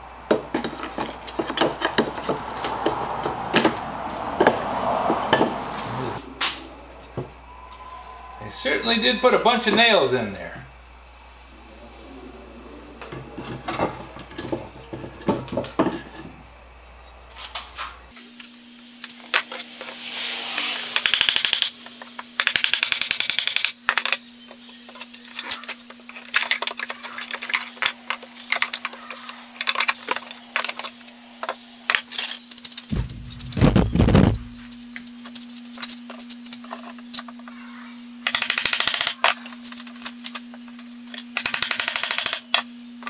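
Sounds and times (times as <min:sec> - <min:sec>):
tools and nails clinking on wood: 0:00.4 - 0:03.0, 0:22.4 - 0:32.9, 0:38.2 - 0:40.4, 0:41.1 - 0:42.6.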